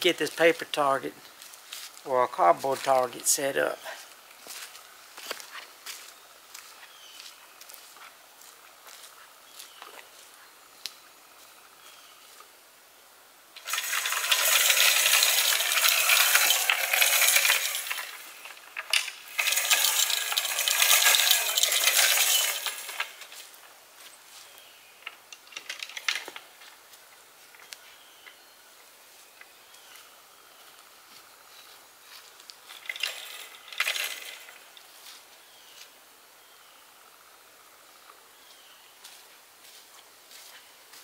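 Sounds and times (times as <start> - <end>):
metal hanger scraping along cable: 13.6 - 23.4, 32.7 - 34.7.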